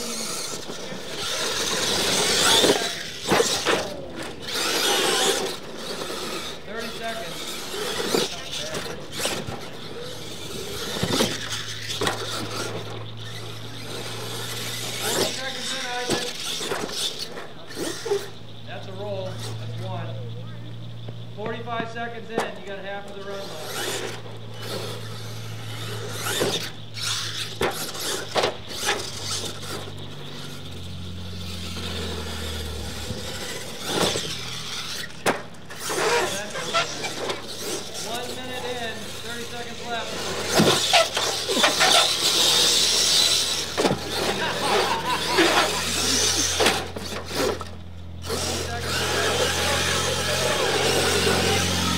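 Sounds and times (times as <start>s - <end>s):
electric motor whine: 0.0s - 18.5s, 23.2s - 51.9s
tires scrabbling over loose dirt: 0.0s - 51.9s
rc truck knocking on wooden ramps: 23.6s - 29.8s, 40.3s - 51.9s.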